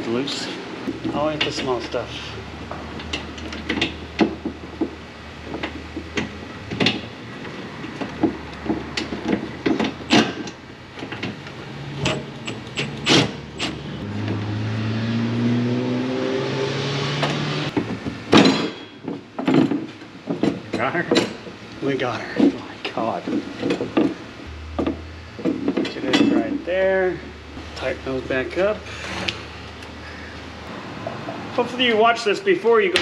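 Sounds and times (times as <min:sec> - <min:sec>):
metal knocks and clicks: 0:07.8 - 0:11.4, 0:23.3 - 0:26.5
motor hum: 0:24.0 - 0:27.6.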